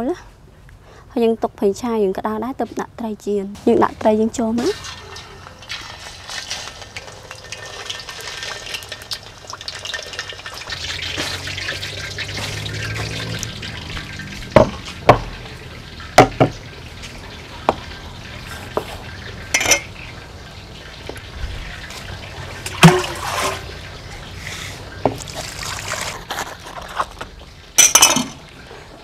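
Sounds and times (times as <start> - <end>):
fish sizzling in hot oil: 4.6 - 26.3
knocks on wooden table: 14.6 - 15.3, 16.2 - 16.5.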